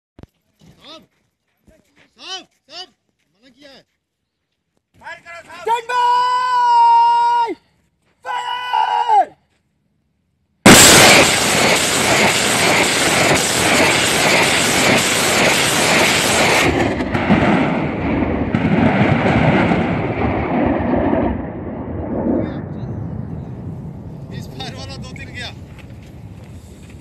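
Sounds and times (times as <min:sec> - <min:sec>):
rocket launch roar: 0:10.6 - 0:27.0.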